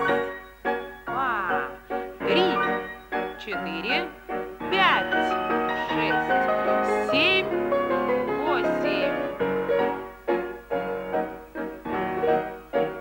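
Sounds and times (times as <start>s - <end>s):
piano chords: 0.0s - 13.0s.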